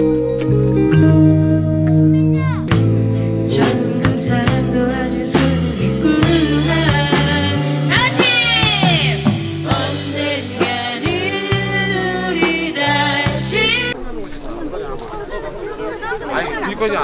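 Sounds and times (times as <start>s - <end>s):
live rock band playing: 0.0s - 14.0s
person singing: 3.4s - 14.0s.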